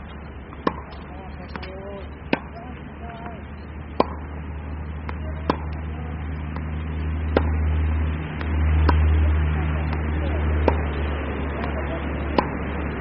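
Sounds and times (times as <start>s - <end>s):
low rumble: 0.0s - 13.0s
tennis ball struck by racket: 0.5s - 4.4s, 5.0s - 7.7s, 8.3s - 13.0s.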